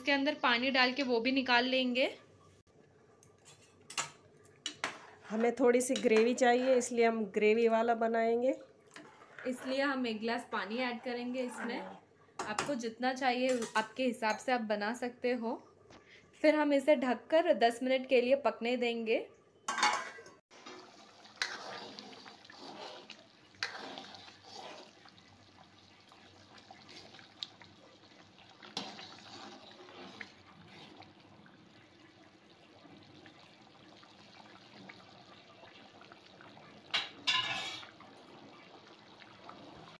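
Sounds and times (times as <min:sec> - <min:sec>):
gravy simmering and bubbling: 0:08.6 - 0:12.4, 0:20.4 - 0:40.0
ladle stirring: 0:08.9 - 0:12.0, 0:19.8 - 0:39.2.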